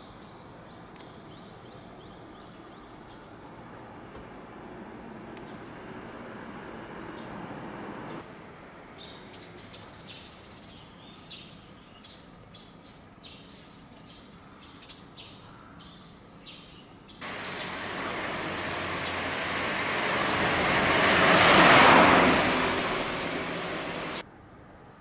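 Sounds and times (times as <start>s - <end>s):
vehicle passing: 4.5s - 8.2s, 17.2s - 24.2s
birds chirping: 6.8s - 24.2s.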